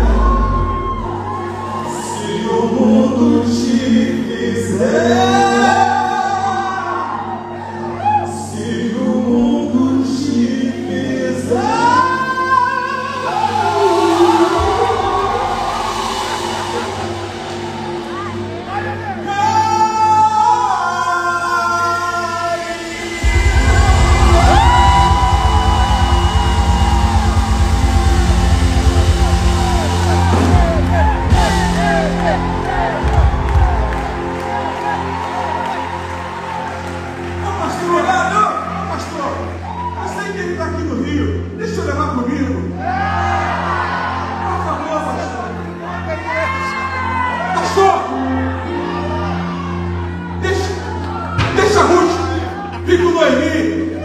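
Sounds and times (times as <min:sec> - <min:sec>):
person singing high held note: 0:12.9 - 0:20.0
backing band playing: 0:13.0 - 0:19.8, 0:22.4 - 0:37.9.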